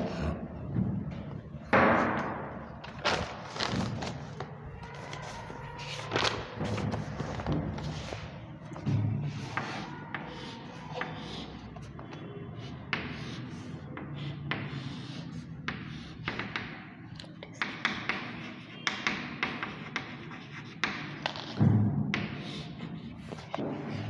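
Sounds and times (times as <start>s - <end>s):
chalk scratching on blackboard: 4.9s - 16.9s, 17.6s - 24.0s
chalk tapping on blackboard: 6.6s - 24.0s.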